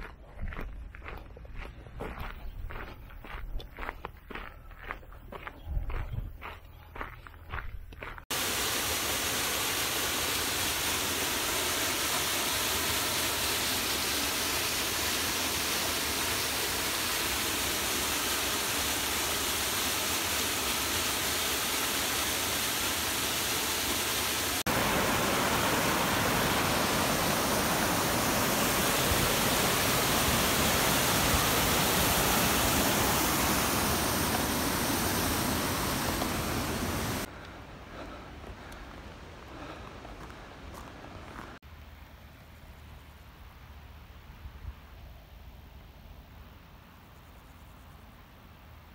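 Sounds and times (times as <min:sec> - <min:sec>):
waterfall rushing: 0:08.3 - 0:37.3.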